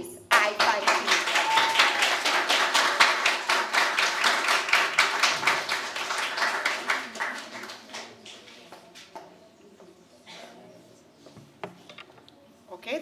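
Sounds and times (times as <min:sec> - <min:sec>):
audience applause: 0:00.4 - 0:08.4.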